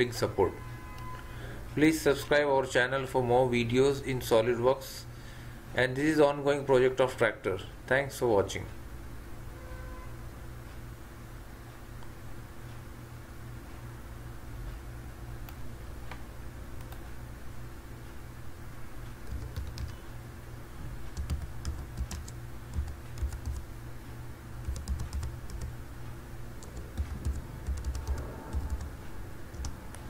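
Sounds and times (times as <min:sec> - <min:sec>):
steady low hum: 0:00.0 - 0:30.0
keyboard typing clicks: 0:16.8 - 0:17.0, 0:19.1 - 0:20.0, 0:21.1 - 0:23.7, 0:24.6 - 0:25.7, 0:26.6 - 0:30.0.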